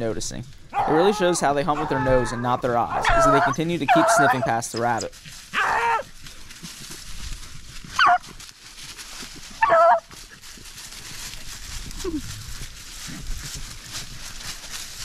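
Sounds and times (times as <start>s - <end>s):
rustle of dry leaves: 0.0s - 15.0s
dog yelping: 0.7s - 6.1s, 8.0s - 8.2s, 9.6s - 10.1s.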